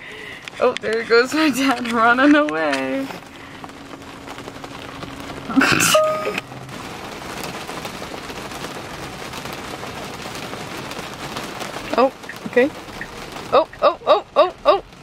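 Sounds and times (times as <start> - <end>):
heavy rain on car roof: 0.0 - 15.0
brief steady tone: 5.7 - 6.4.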